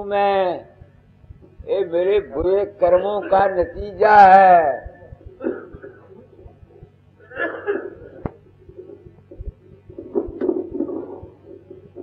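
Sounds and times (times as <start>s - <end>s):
person coughing: 5.4s - 6.3s, 7.2s - 8.3s.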